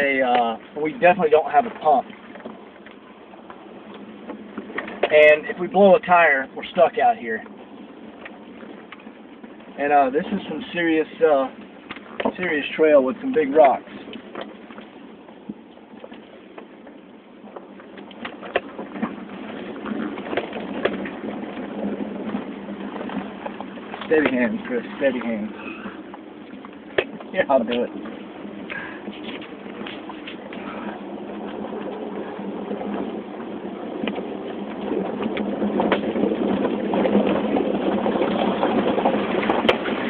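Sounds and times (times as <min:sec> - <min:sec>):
suspension knocks and creaks: 0:00.0 - 0:05.9, 0:11.5 - 0:40.0
vehicle engine rumble: 0:00.0 - 0:40.0.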